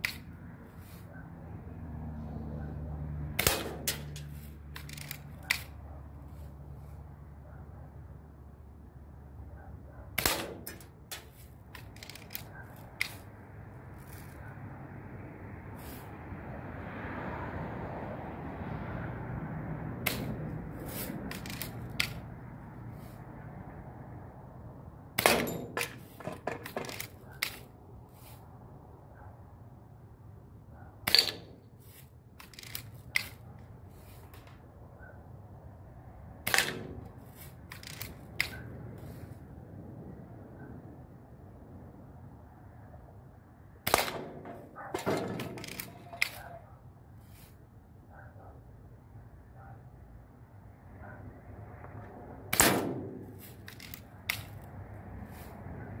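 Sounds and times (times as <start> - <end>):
air gun firing crack: 3.4 - 5.8, 10.2 - 12.4, 20.0 - 22.2, 25.2 - 27.6, 36.4 - 38.7, 43.8 - 46.5, 52.5 - 54.6
small clicks and rattles: 3.8 - 5.8, 10.6 - 13.2, 21.3 - 22.2, 32.4 - 33.4, 37.7 - 38.6, 44.4 - 46.5, 53.4 - 54.7.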